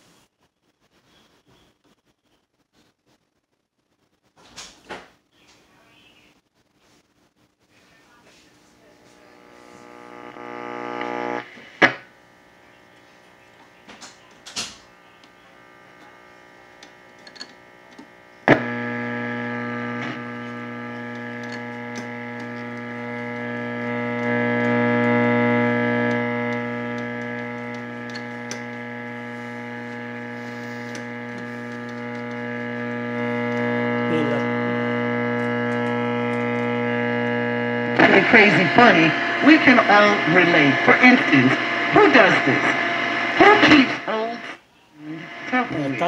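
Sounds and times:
mains hum from speaker: 0.0s - 46.0s
radio switch click: 9.4s - 12.1s, 12.8s - 44.5s.

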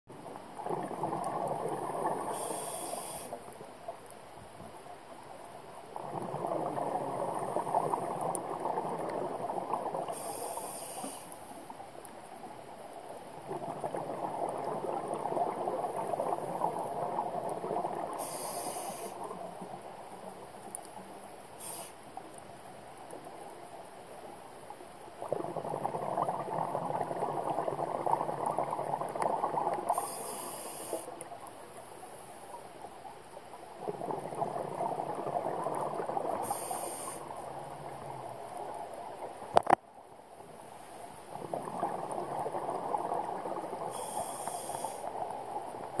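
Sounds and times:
exhaled air bubbling: 0.6s - 3.3s, 5.9s - 11.0s, 13.3s - 19.8s, 25.2s - 31.1s, 33.8s - 39.7s, 41.3s - 46.0s
regulator hiss: 2.2s - 3.5s, 10.1s - 11.7s, 18.1s - 19.3s, 21.5s - 22.2s, 29.9s - 31.2s, 36.4s - 37.4s, 43.9s - 45.2s.

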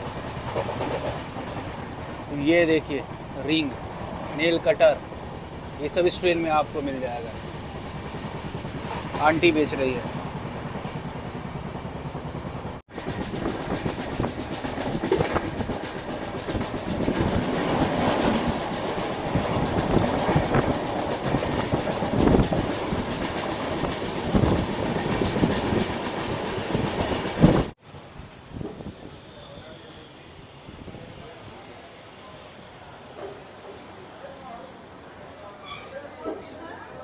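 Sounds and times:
wheels clacking over rail joints: 0.0s - 3.0s
train rumble: 0.0s - 34.2s
wind: 0.0s - 37.0s.

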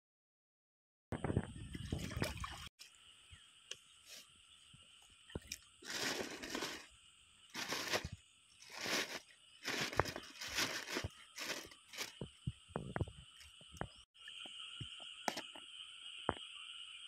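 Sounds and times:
plastic bag rustling: 5.8s - 6.9s, 7.5s - 12.2s.

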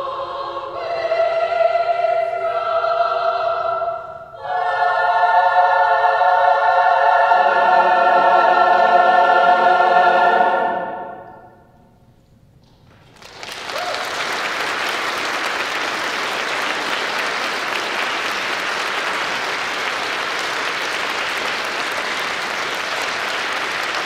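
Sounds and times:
choir singing final chord: 0.0s - 11.6s
audience applauding: 12.9s - 24.0s.

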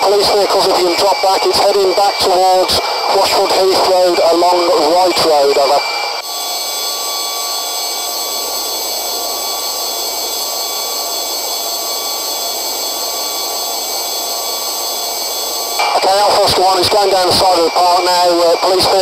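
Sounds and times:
radio static hiss: 0.0s - 5.9s, 15.8s - 19.0s.

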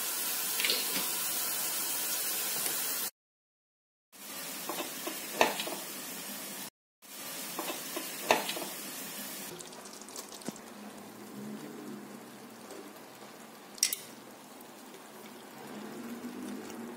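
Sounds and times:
water boiling hard: 7.0s - 16.9s.

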